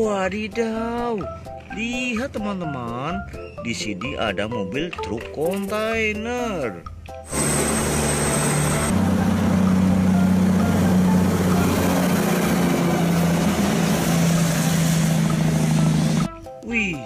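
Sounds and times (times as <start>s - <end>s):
road noise: 7.2s - 16.3s
truck diesel engine driving: 7.2s - 16.4s.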